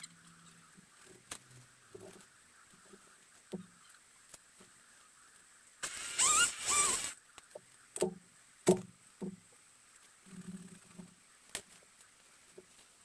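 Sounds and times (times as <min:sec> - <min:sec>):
chainsaw engine bursts: 0:05.8 - 0:07.2.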